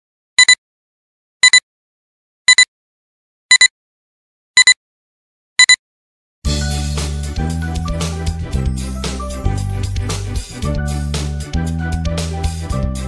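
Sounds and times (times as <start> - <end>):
electronic double beeps: 0.4 - 0.6.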